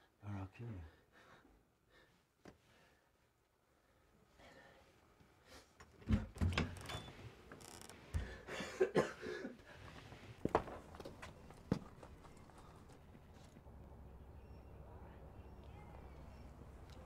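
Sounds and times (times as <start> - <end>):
man coughing: 8.5 - 9.6.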